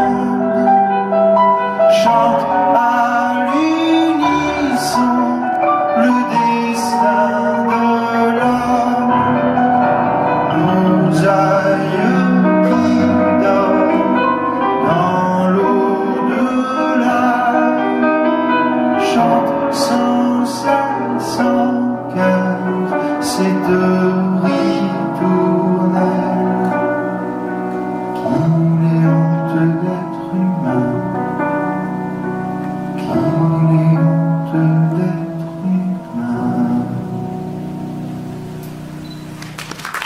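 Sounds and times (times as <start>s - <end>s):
man singing: 0.0s - 27.4s, 28.0s - 37.8s.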